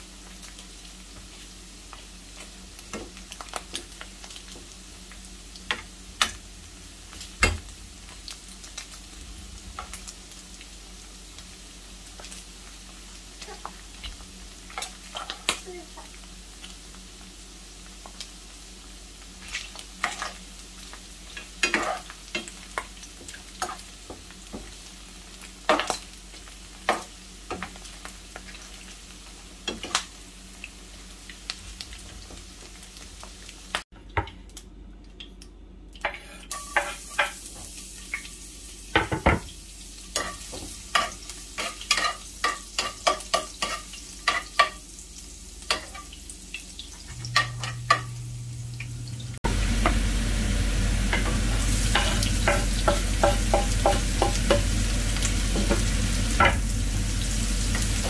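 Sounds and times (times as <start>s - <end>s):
meat sizzling in a frying pan: 0.0s - 33.9s, 36.2s - 58.0s
metal spoon scraping a pan: 36.0s - 37.4s.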